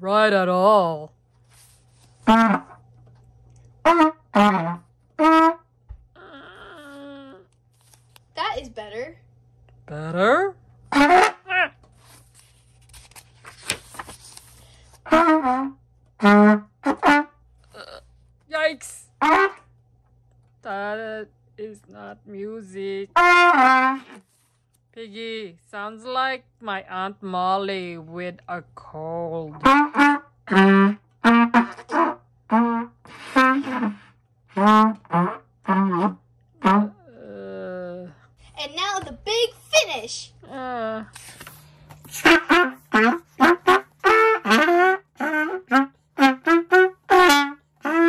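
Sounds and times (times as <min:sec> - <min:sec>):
book page rustling and turning: 0:01.3 - 0:02.2, 0:07.6 - 0:08.3, 0:11.8 - 0:15.0, 0:24.2 - 0:24.8, 0:41.1 - 0:42.2
trumpet blasting notes: 0:02.2 - 0:02.9, 0:03.8 - 0:05.8, 0:10.9 - 0:11.8, 0:15.0 - 0:17.5, 0:19.2 - 0:19.7, 0:23.1 - 0:24.3, 0:29.5 - 0:37.1, 0:42.0 - 0:48.0.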